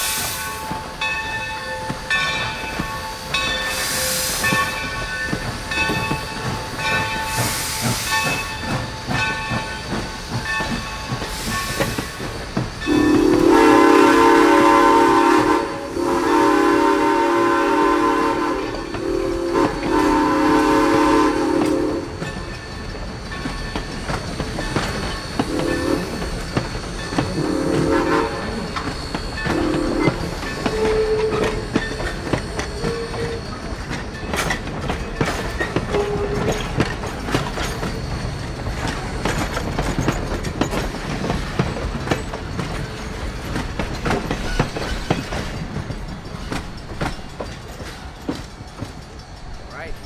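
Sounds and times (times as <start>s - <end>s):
steam hissing: 0.0s - 50.0s
locomotive bell ringing: 0.2s - 13.6s, 18.7s - 50.0s
steam whistle blowing: 12.9s - 22.2s, 25.5s - 26.2s, 27.4s - 28.7s, 29.4s - 31.7s, 35.9s - 36.5s.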